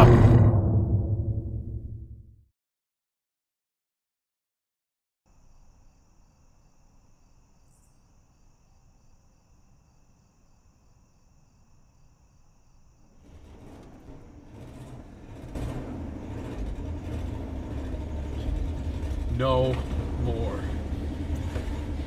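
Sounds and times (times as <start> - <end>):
low hum: 0.0 - 2.4, 13.1 - 22.0
low rumble: 0.0 - 2.4, 13.2 - 22.0
crickets chirping: 5.3 - 22.0.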